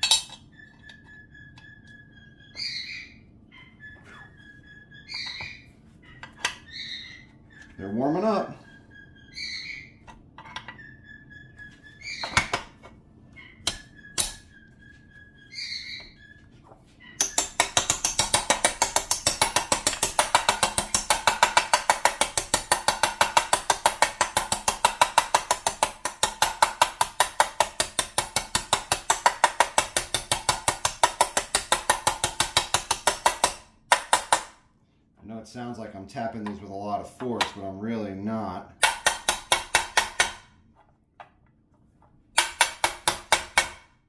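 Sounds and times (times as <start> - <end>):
hammer tapping metal driver: 17.2 - 34.5, 38.8 - 40.5, 42.4 - 43.8.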